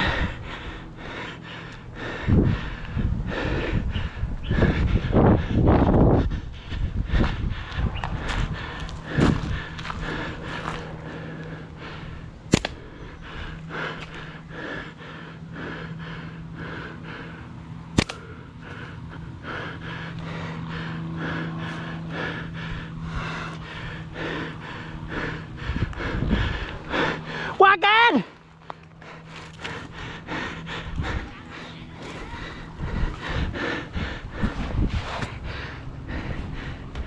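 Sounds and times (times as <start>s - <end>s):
steady low hum: 0.0s - 37.0s
slingshot rubber band snap: 12.5s - 12.8s, 18.0s - 18.2s.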